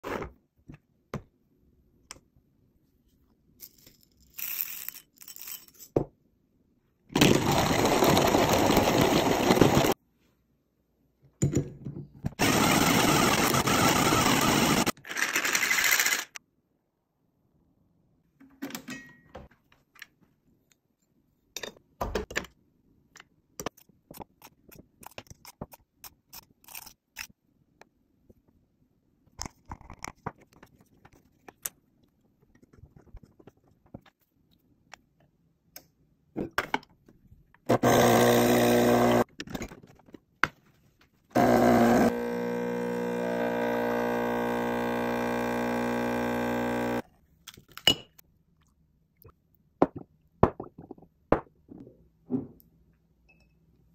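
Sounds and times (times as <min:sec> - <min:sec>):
espresso machine pump buzzing: 0:37.7 - 0:39.2, 0:41.4 - 0:47.0.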